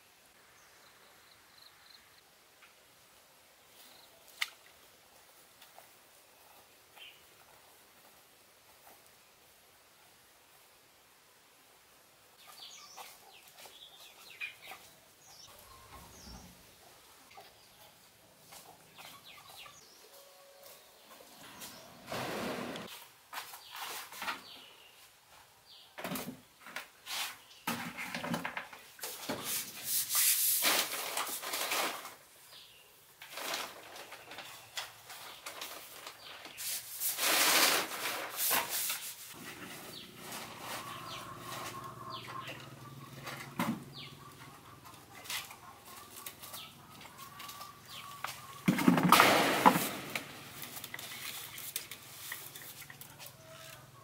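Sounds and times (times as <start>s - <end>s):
distant birds calling: 39.4s - 54.0s.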